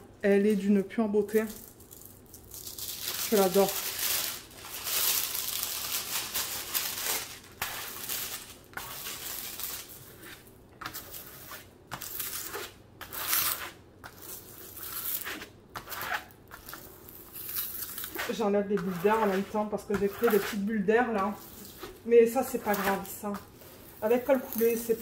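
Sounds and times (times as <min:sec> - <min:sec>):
plastic film crinkling: 0:01.3 - 0:11.3, 0:16.1 - 0:19.6, 0:21.3 - 0:25.0
ruler scraping across plastic film: 0:18.0 - 0:20.6.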